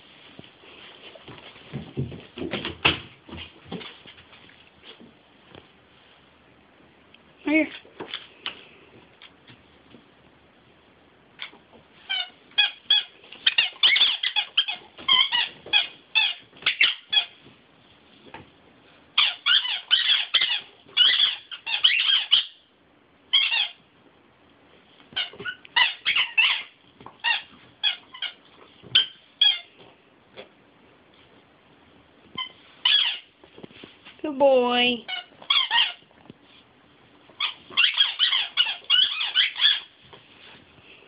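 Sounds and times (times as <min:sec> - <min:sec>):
squeaky toy squeaking: 0:12.0 - 0:17.4, 0:19.2 - 0:22.6, 0:23.3 - 0:23.8, 0:25.2 - 0:29.7, 0:32.4 - 0:33.3, 0:35.1 - 0:36.0, 0:37.4 - 0:39.9.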